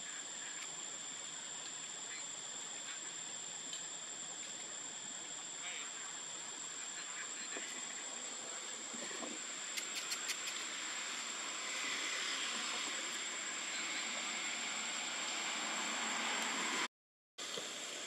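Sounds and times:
high-pitched whine: 0.0 - 16.9
steady outdoor hiss: 0.0 - 18.0
quick sharp clicks: 9.7 - 10.6.

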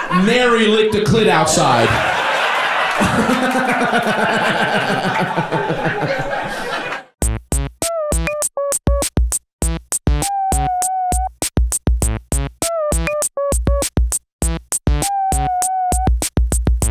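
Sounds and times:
drum machine beat: 7.2 - 16.9.

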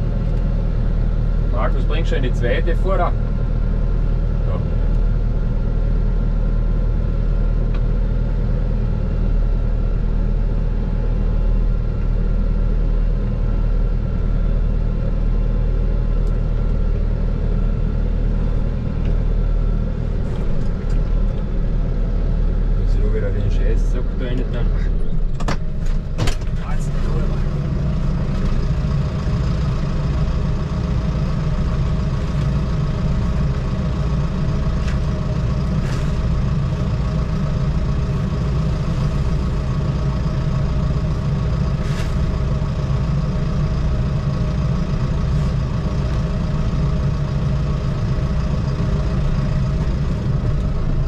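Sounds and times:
tractor diesel engine idling: 0.0 - 51.0.

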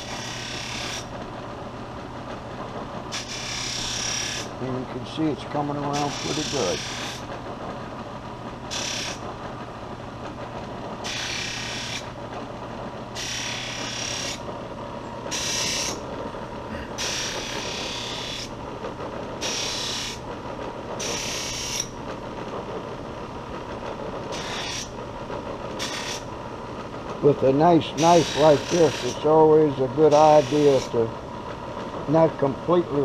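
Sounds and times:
knife blade rasping on buffing wheel: 0.0 - 1.1, 3.1 - 4.5, 5.9 - 7.2, 8.7 - 9.2, 11.0 - 12.1, 13.2 - 14.4, 15.3 - 16.0, 17.0 - 18.5, 19.4 - 20.2, 21.0 - 21.9, 24.3 - 24.9, 25.8 - 26.2, 27.9 - 29.4, 30.1 - 31.0
bench buffer running: 2.7 - 7.3, 10.3 - 18.8, 19.4 - 26.6, 27.2 - 31.4.

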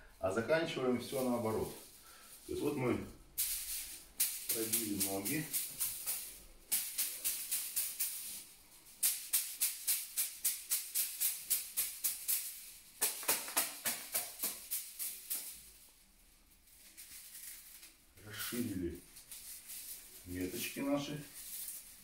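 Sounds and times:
bamboo whisks beating a body: 3.4 - 15.6.

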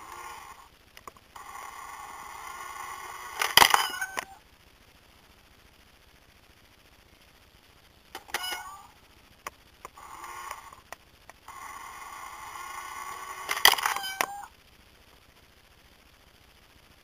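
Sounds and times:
small electric motor whirring: 0.0 - 0.7, 1.4 - 4.4, 9.9 - 10.9, 11.5 - 14.5
mechanism clicks: 2.5 - 4.3, 13.1 - 14.4
squeaky tone: 3.0 - 4.4, 8.2 - 8.9, 13.1 - 14.5.

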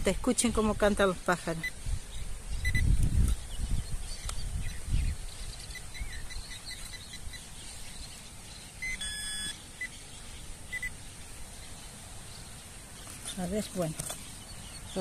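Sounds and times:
small birds chirping: 0.0 - 15.0
metal detector beep: 2.6 - 2.9, 8.8 - 10.0, 10.7 - 11.0.

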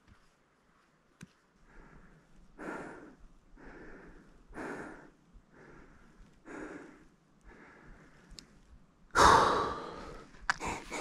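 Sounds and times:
hard breathing: 1.6 - 8.4, 9.1 - 11.0.

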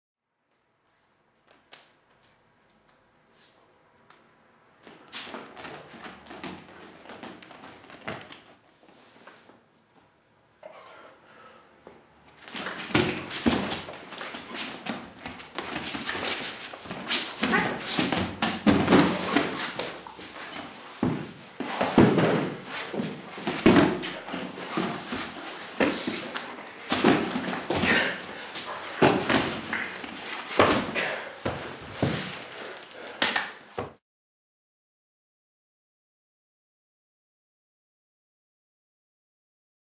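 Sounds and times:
scuffling: 12.4 - 32.4
bodies thudding on foam mat: 12.5 - 32.4.

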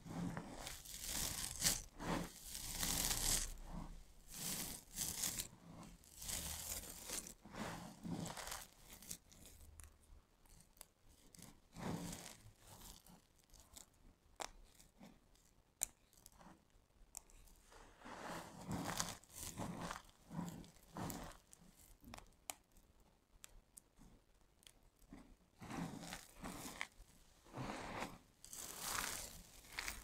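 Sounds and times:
hands crunching dry soap chips: 0.6 - 3.6, 4.3 - 5.5, 6.1 - 7.3, 28.4 - 30.0.

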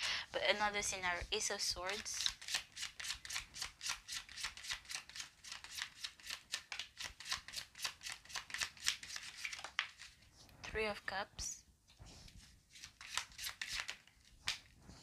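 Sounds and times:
cards being shuffled: 1.5 - 10.8, 12.3 - 14.8.

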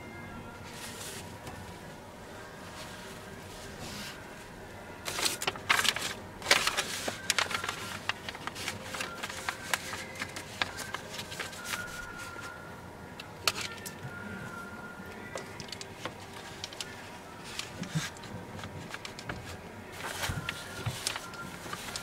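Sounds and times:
paper crinkling: 5.0 - 12.6, 15.3 - 22.0.

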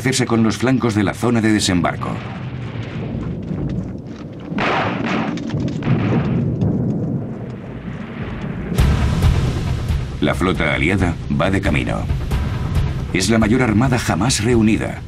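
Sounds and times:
low rumbling: 0.0 - 15.0
sharp bang: 8.7 - 10.2.

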